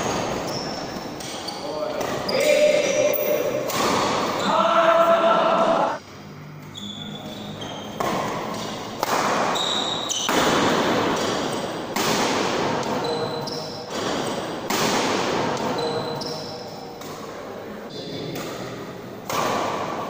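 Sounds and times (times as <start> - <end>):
shoes squeaking on court floor: 0.0 - 4.8, 6.5 - 10.5, 12.8 - 14.5, 15.5 - 17.2
racket hitting shuttlecock: 3.2 - 4.4, 7.9 - 17.3, 18.3 - 20.0.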